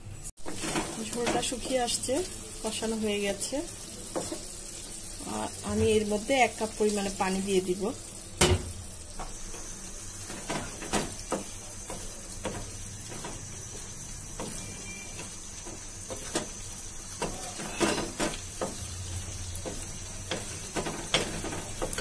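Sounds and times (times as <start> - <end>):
curry sizzling: 0.0 - 22.0
wooden spatula scraping metal pot: 0.5 - 1.8, 17.2 - 18.8.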